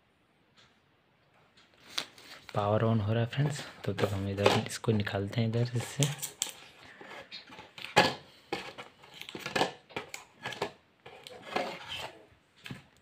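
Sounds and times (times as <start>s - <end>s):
cardboard packaging rustling and scraping: 3.3s - 12.3s.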